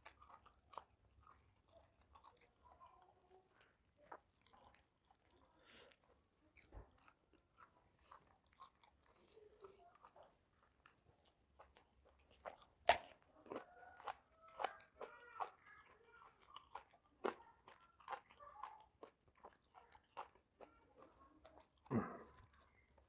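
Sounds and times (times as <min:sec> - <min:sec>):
wet chewing: 0:00.0 - 0:23.0
crunch of biting raw eggplant: 0:11.6 - 0:15.1.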